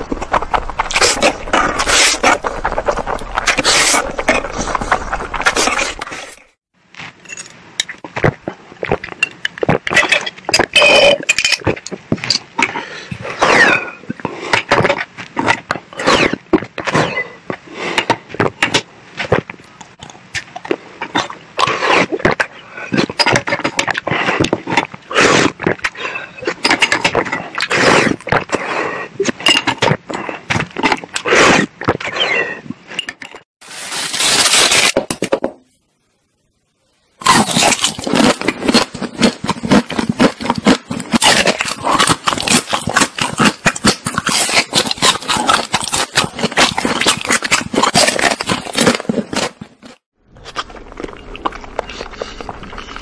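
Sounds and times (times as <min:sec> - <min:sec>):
sipping and gulping drinks: 0:37.2 - 0:53.0.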